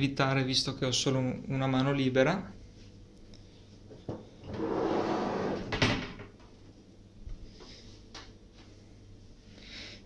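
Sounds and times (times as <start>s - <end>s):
metal panel scraping slide: 4.5s - 5.8s.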